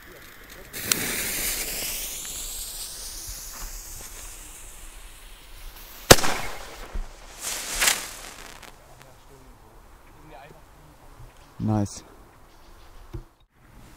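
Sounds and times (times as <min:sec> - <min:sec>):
small firework pops: 0:00.0 - 0:09.2
firework bursting with bang: 0:00.7 - 0:09.2
firework launch hiss: 0:00.7 - 0:09.3.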